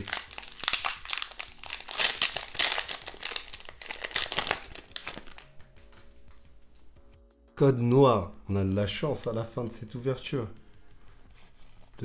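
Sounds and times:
foil wrapper crinkling and tearing: 0.0 - 6.0.

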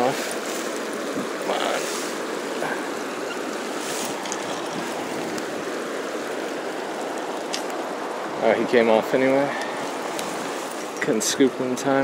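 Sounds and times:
river flowing fast: 0.0 - 12.0.

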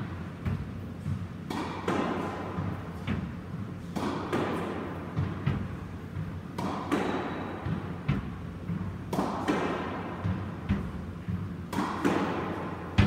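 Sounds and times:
squash ball knocks: 4.0 - 13.0.

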